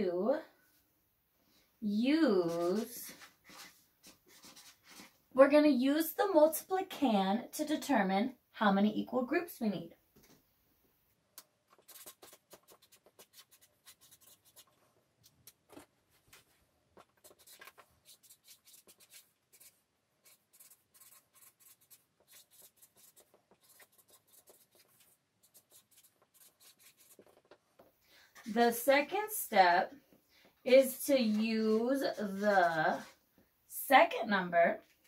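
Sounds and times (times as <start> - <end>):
marker pen writing on paper: 2.4 - 5.2, 11.7 - 14.8, 17.0 - 27.6.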